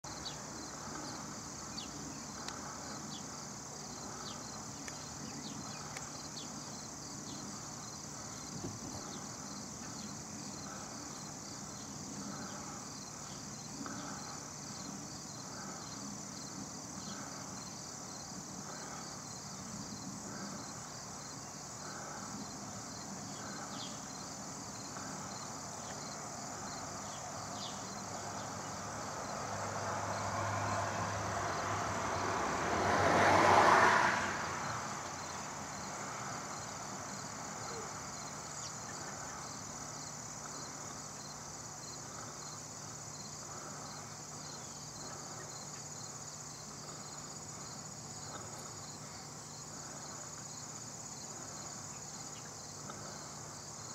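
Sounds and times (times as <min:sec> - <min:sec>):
insects chirring: 0:00.0 - 0:53.9
vehicle passing by: 0:26.9 - 0:37.6.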